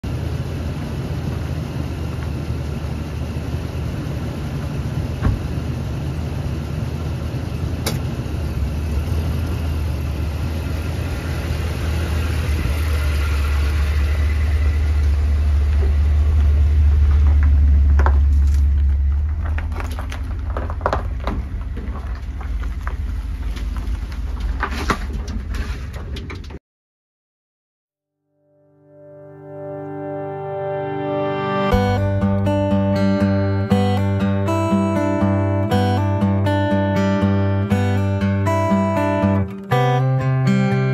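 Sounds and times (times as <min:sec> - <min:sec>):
truck engine rumble: 0:00.0 - 0:26.6, 0:31.7 - 0:40.9
gravel crunching under tyres: 0:00.1 - 0:26.6.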